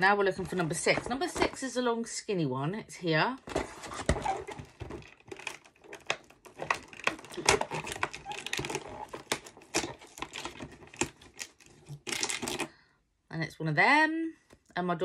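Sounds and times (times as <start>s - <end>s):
cardboard packaging rustling: 0.0s - 1.8s, 3.4s - 12.7s.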